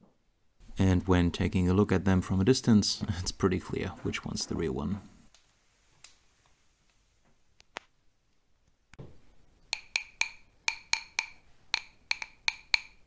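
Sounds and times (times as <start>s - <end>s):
plastic tubes tapping together: 9.7s - 13.0s.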